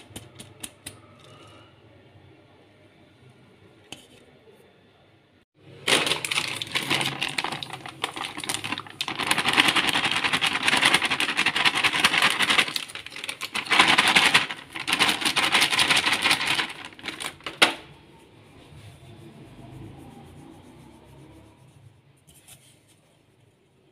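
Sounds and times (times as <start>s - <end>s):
metal sieve rattling: 5.9s - 17.8s.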